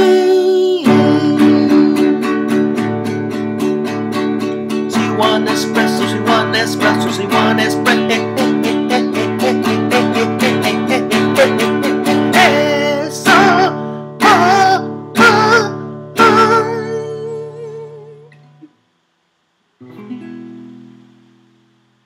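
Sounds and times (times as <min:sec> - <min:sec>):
man singing: 0:00.0 - 0:02.7, 0:04.9 - 0:18.4
acoustic guitar strummed fast: 0:00.0 - 0:18.0.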